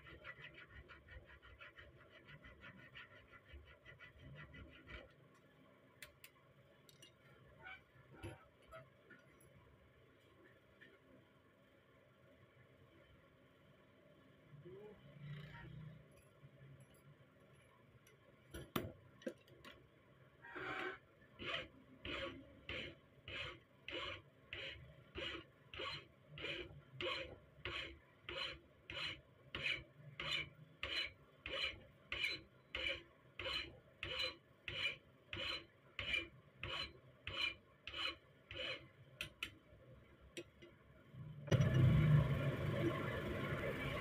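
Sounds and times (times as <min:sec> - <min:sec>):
hand file rasping on steel: 0:21.4 - 0:39.4.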